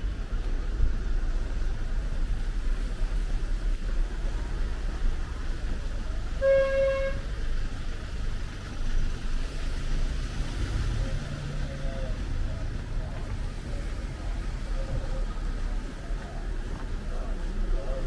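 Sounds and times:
low rumble of traffic: 0:00.0 - 0:18.0
vehicle horn toot: 0:06.4 - 0:07.3.

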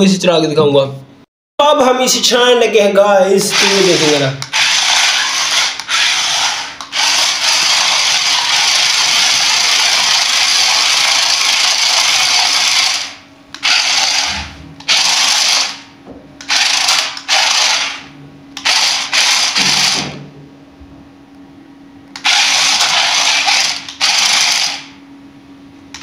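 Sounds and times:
toy car electric motors running: 0:03.5 - 0:15.8, 0:16.4 - 0:20.0, 0:22.2 - 0:25.0.

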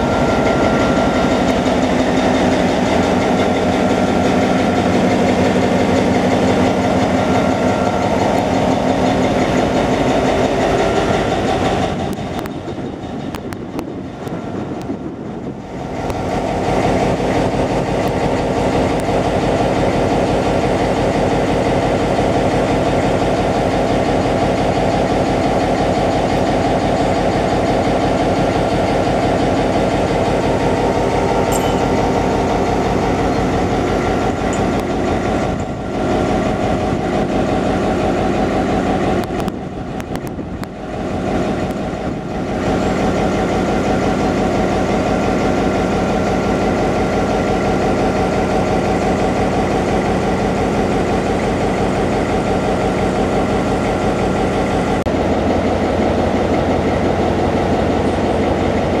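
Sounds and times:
diesel locomotives idling: 0:00.0 - 0:59.0.

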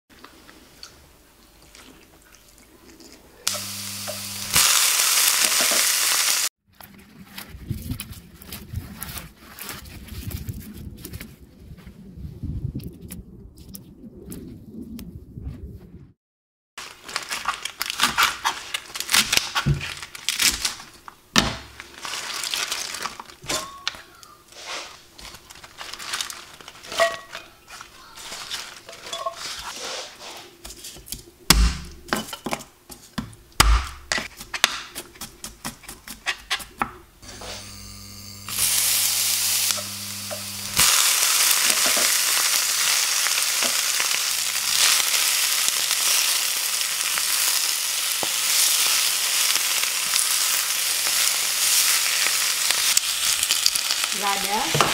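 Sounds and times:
leaves sizzling in hot oil: 0:03.5 - 0:06.5, 0:16.8 - 0:20.9, 0:21.7 - 0:23.8, 0:24.5 - 0:30.4, 0:37.2 - 0:54.9
spatula turning food in pan: 0:03.5 - 0:06.5, 0:37.2 - 0:54.9
leaves being handled: 0:03.5 - 0:12.0, 0:16.8 - 0:31.3, 0:37.3 - 0:54.9
knife chopping on plastic board: 0:33.2 - 0:37.0
low hum: 0:37.2 - 0:40.9.

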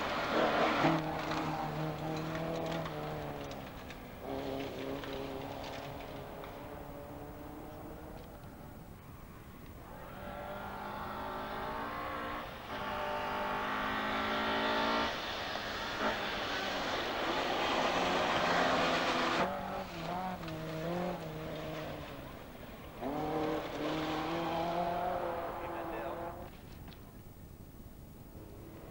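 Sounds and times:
rally car engine at full throttle: 0:00.0 - 0:27.0
tyres on gravel: 0:00.0 - 0:28.9.

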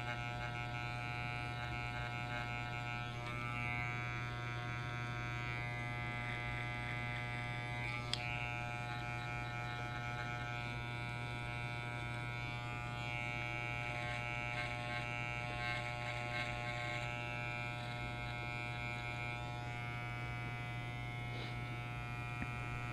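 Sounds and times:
hair trimmer buzzing: 0:00.0 - 0:22.9
small click: 0:08.0 - 0:08.3.

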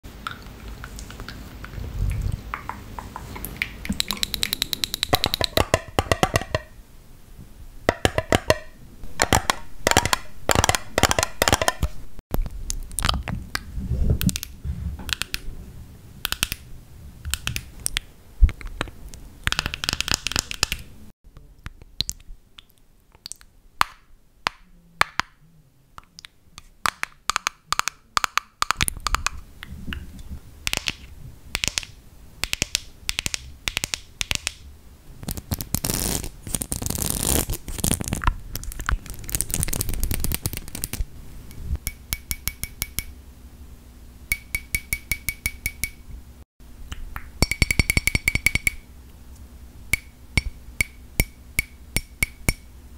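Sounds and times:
fingernails tapping and clicking: 0:03.9 - 0:06.7, 0:16.2 - 0:16.6.

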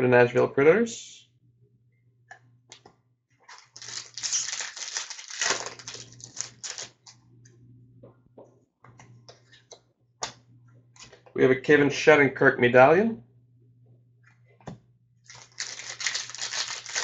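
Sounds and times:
foil wrapper tearing and crinkling: 0:03.5 - 0:07.1, 0:15.3 - 0:17.0
cards clicking and flicking: 0:03.5 - 0:07.2, 0:15.3 - 0:17.0.

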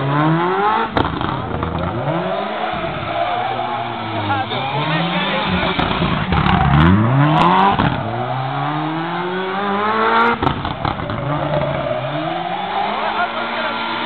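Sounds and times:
car engine revving hard: 0:00.0 - 0:14.0
exhaust pops: 0:00.7 - 0:03.1, 0:05.5 - 0:08.3, 0:10.2 - 0:12.1.

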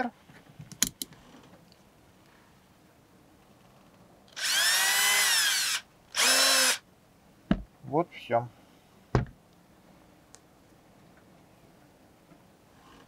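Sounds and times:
cordless drill whining: 0:04.3 - 0:06.8.

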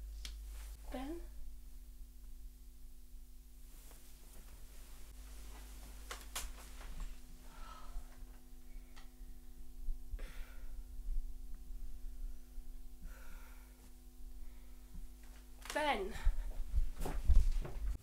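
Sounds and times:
steady low hum: 0:00.0 - 0:18.0
woman breathing heavily: 0:07.4 - 0:09.4, 0:10.1 - 0:15.1.

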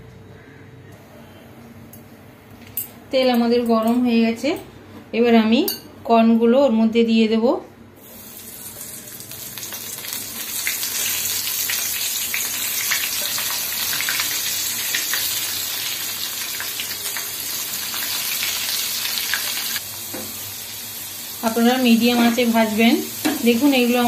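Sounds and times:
corn frying in hot oil: 0:08.0 - 0:24.0.

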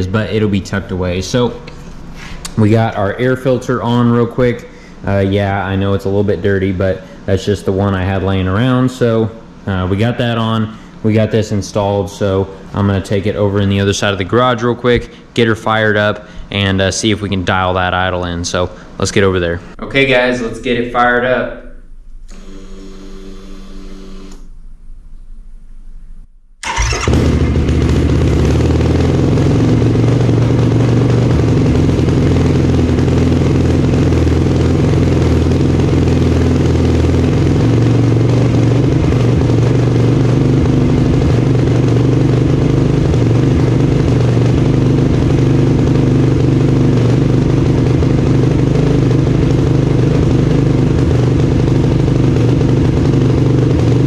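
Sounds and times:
engine idling: 0:26.6 - 0:54.0.

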